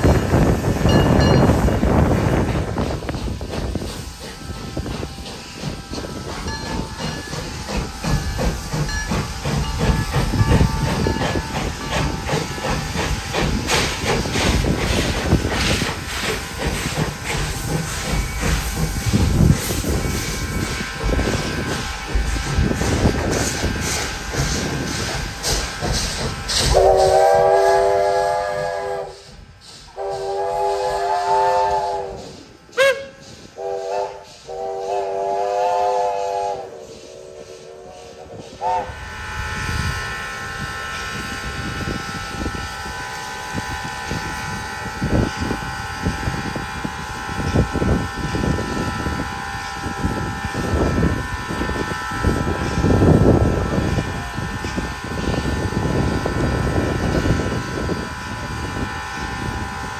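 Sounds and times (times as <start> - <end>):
steam locomotive whistle: 26.5 - 59.9.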